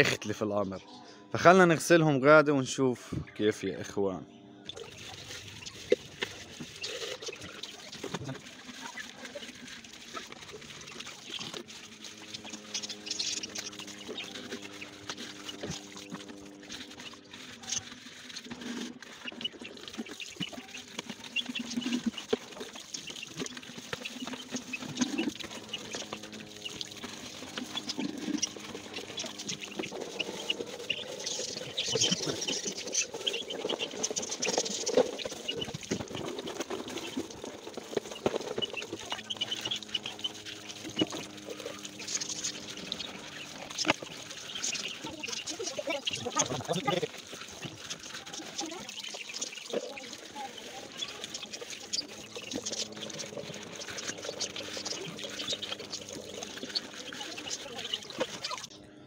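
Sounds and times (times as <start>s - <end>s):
farm birds calling: 4.6s - 59.0s
water splashing and pouring: 4.7s - 58.8s.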